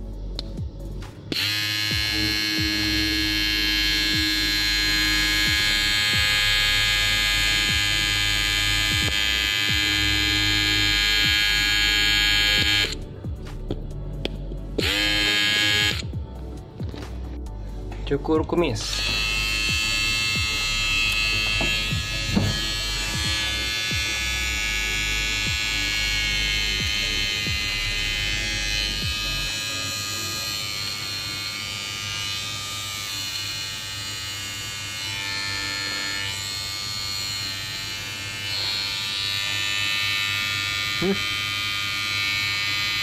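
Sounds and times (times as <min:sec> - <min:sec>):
trimmer motor whine: 0:01.3 - 0:13.1, 0:14.8 - 0:16.2, 0:18.8 - 0:43.0.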